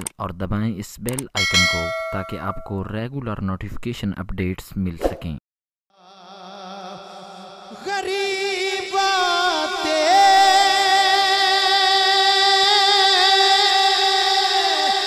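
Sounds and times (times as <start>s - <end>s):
man singing wordless note: 6.0s - 15.0s.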